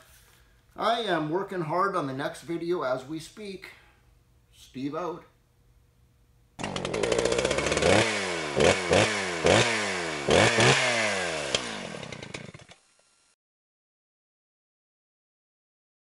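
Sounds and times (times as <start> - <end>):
engine revving: 6.6 - 12.8.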